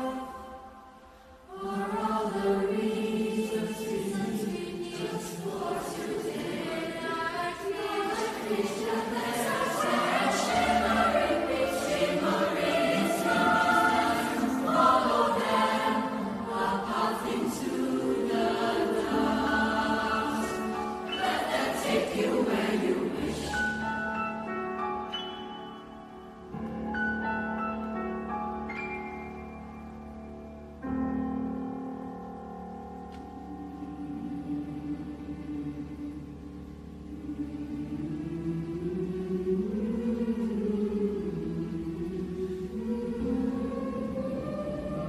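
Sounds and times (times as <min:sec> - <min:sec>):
youth choir singing: 0:00.0 - 0:24.4, 0:37.1 - 0:45.0.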